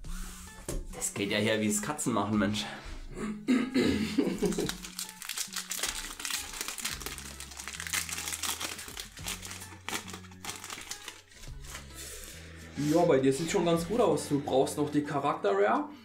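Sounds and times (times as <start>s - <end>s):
foil wrapper crinkling: 4.4s - 12.4s
cards sliding out of pack: 4.5s - 12.4s.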